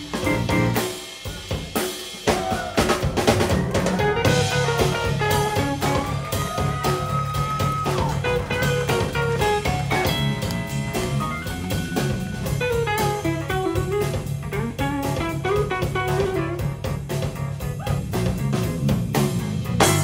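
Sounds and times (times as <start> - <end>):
electric bass: 0.0 - 1.0, 3.2 - 20.0
keyboards: 0.0 - 1.5, 3.3 - 20.0
busy drum kit: 0.0 - 20.0
electric guitar lead: 3.7 - 16.9.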